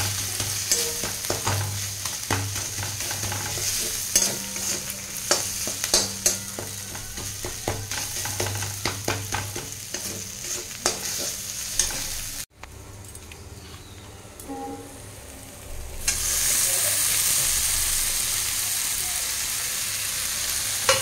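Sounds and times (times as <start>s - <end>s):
spatula clinking against pan: 0.0s - 12.2s
metal spatula scraping pan: 0.0s - 12.4s
onions sizzling in oil: 0.0s - 12.5s, 15.8s - 21.0s.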